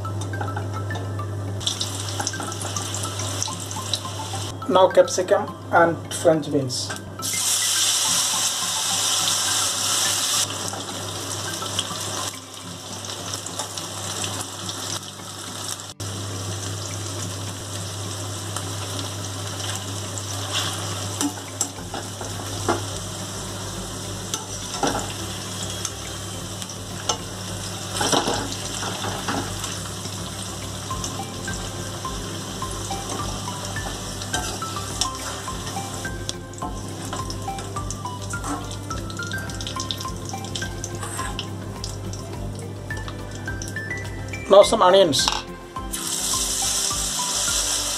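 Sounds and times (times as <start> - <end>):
vegetables deep-frying in oil: 1.6 - 4.5, 7.2 - 43.8, 45.9 - 47.9.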